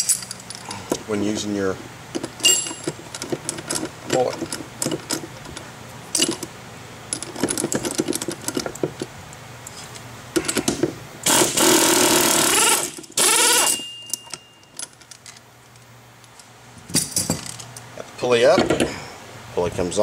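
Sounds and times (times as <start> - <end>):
metal tools clinking: 0.0 - 0.7, 2.3 - 6.4, 13.4 - 15.4
air wrench running: 11.2 - 13.9.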